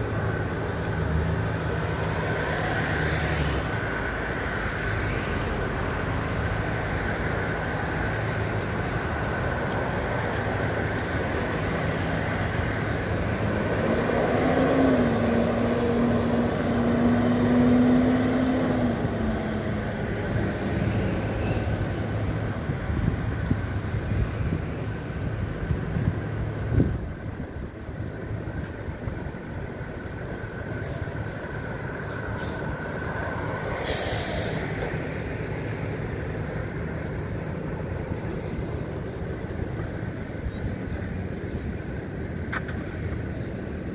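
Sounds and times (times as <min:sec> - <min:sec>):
city traffic hum: 0:00.0 - 0:43.9
passing vehicle engine drone: 0:00.1 - 0:25.7.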